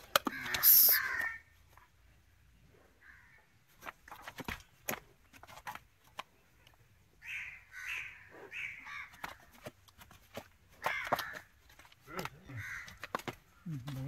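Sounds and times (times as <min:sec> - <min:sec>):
crow cawing: 0:00.3 - 0:01.5, 0:03.0 - 0:03.4, 0:07.2 - 0:09.4, 0:10.8 - 0:11.5, 0:12.4 - 0:13.3.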